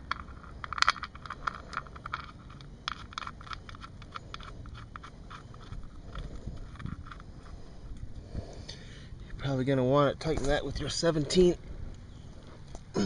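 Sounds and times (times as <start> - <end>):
drain plug clicking and scraping: 0.0 - 8.0.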